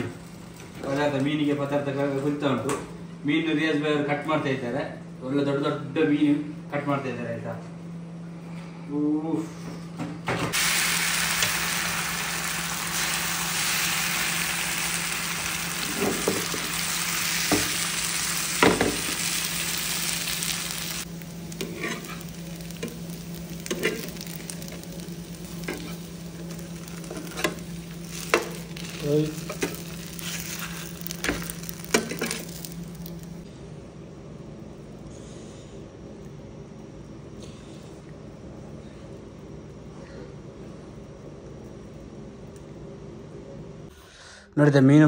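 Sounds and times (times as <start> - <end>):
food sizzling in a pan: 10.6 - 33.4.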